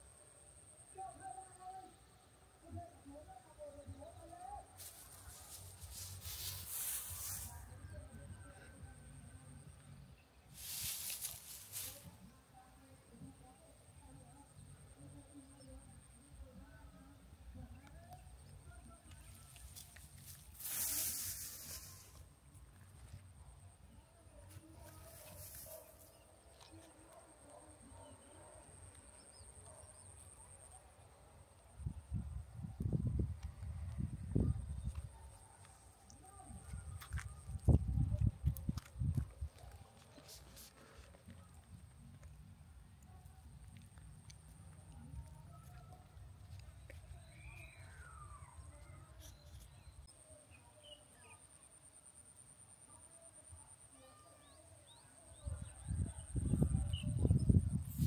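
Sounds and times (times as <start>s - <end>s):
faint chirps: 43.0s - 58.0s.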